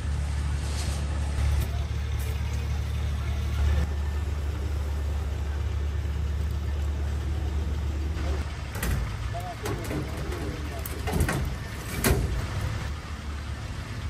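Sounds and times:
small engine humming: 0:01.2 - 0:11.9.

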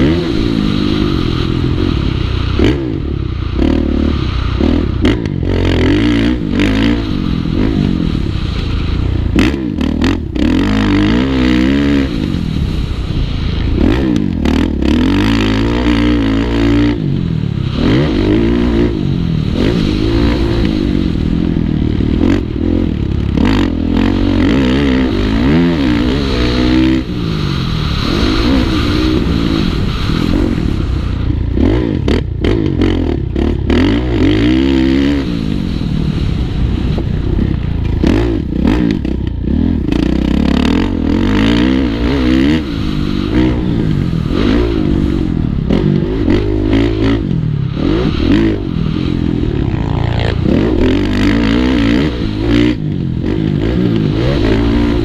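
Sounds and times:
motorcycle engine revving: 0:00.0 - 0:55.0
wind on microphone: 0:00.0 - 0:55.0.

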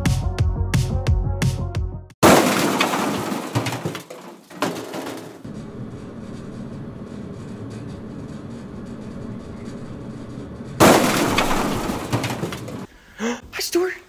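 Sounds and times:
loud crash: 0:02.2 - 0:05.4, 0:10.8 - 0:12.9.

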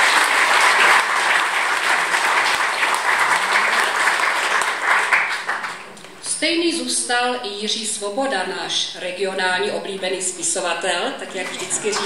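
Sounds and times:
audience applauding: 0:00.0 - 0:06.0, 0:11.4 - 0:12.0.

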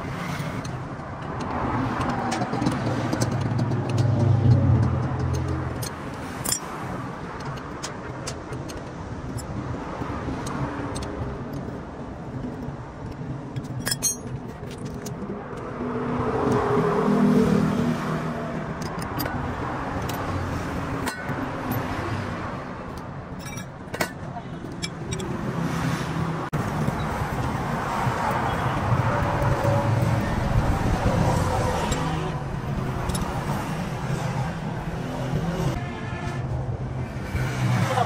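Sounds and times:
traffic rumble: 0:00.0 - 0:38.0
sharp metallic clinks: 0:05.8 - 0:06.7, 0:13.7 - 0:14.4, 0:23.4 - 0:25.4.

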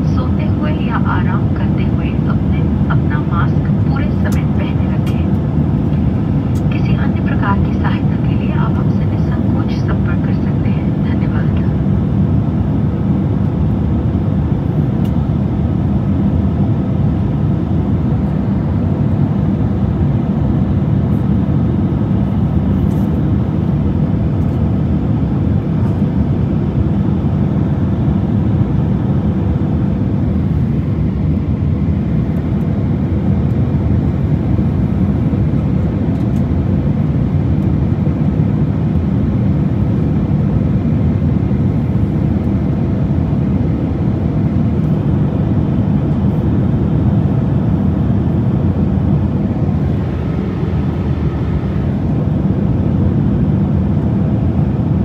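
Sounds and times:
air rushing along fuselage: 0:00.0 - 0:55.0
jet engine drone: 0:00.0 - 0:55.0.

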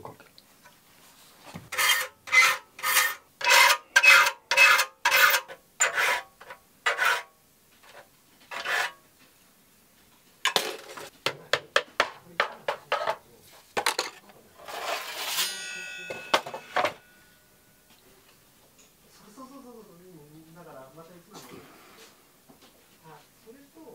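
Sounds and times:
file scraping saw teeth: 0:01.7 - 0:07.3, 0:07.9 - 0:09.0.

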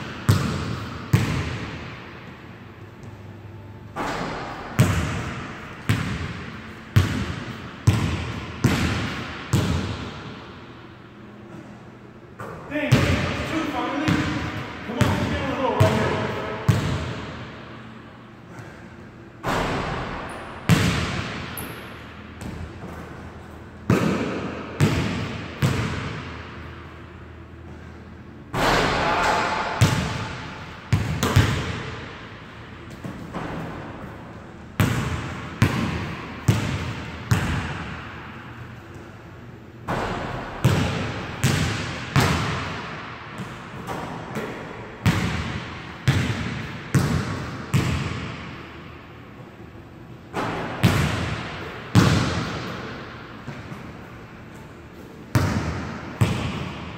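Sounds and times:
basketball bouncing on wooden floor: 0:00.0 - 0:01.8, 0:04.0 - 0:10.2, 0:19.5 - 0:21.7, 0:23.9 - 0:26.4, 0:29.8 - 0:31.9, 0:34.8 - 0:38.1, 0:39.9 - 0:48.4, 0:50.4 - 0:52.8, 0:55.3 - 0:56.8
basketball striking rim and backboard: 0:00.0 - 0:02.0, 0:04.0 - 0:10.4, 0:12.4 - 0:17.5, 0:19.4 - 0:23.0, 0:23.9 - 0:26.6, 0:28.5 - 0:32.3, 0:34.8 - 0:38.5, 0:39.8 - 0:48.6, 0:50.3 - 0:53.9, 0:55.3 - 0:56.9.

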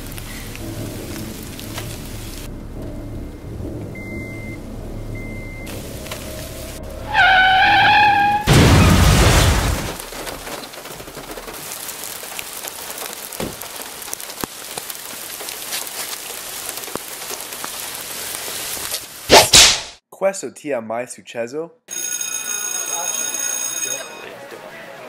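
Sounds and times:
steady rain: 0:00.0 - 0:19.3
loud crash: 0:08.3 - 0:10.0.

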